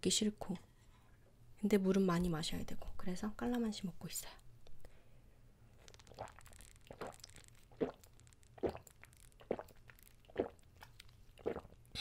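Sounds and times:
person gulping a drink: 5.8s - 12.0s.

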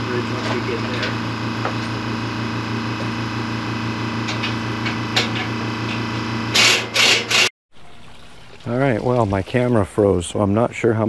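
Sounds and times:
steady low hum: 0.0s - 7.4s.

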